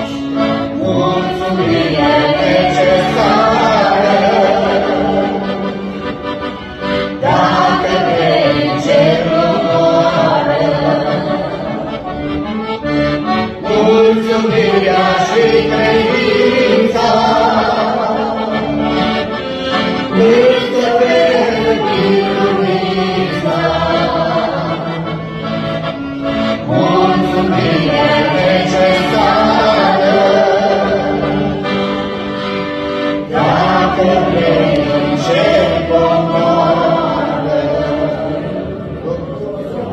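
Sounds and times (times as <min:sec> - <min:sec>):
sustained instrumental chords: 0:00.0 - 0:39.9
person singing religious song: 0:00.8 - 0:05.6, 0:07.2 - 0:11.5, 0:13.6 - 0:18.7, 0:20.1 - 0:25.1, 0:26.6 - 0:31.7, 0:33.3 - 0:39.9.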